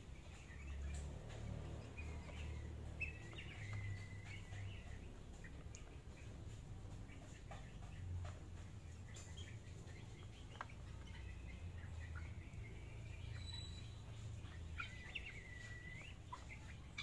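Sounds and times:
faint bird calls: 9.0s - 17.0s.

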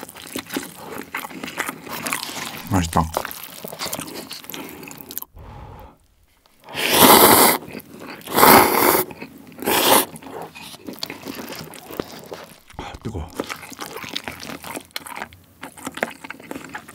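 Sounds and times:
slurping noodles: 0.0s - 3.0s, 6.6s - 14.3s
chewing mouth sounds: 0.0s - 5.4s, 7.0s - 16.9s.

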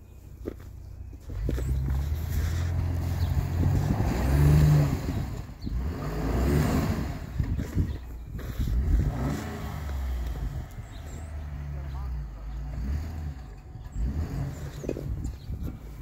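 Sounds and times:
truck engine revving: 1.2s - 16.0s.

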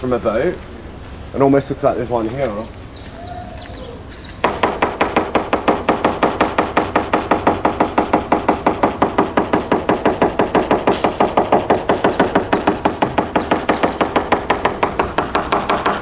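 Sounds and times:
hammer tapping on fibreglass hull: 4.4s - 16.0s.

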